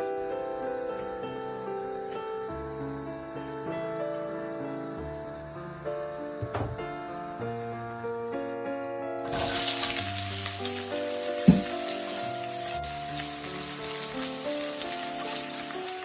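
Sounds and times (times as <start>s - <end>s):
background music: 0.0s - 16.0s
single knock: 6.4s - 6.8s, 11.4s - 11.7s
onion sizzling in hot oil: 9.2s - 16.0s.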